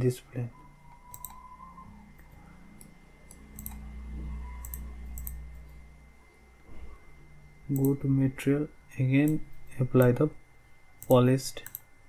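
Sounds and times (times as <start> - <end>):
low steady hum: 0.0 - 12.0
computer mouse clicking: 1.0 - 1.4, 2.2 - 3.8, 4.6 - 5.6, 7.7 - 8.0, 11.0 - 11.9.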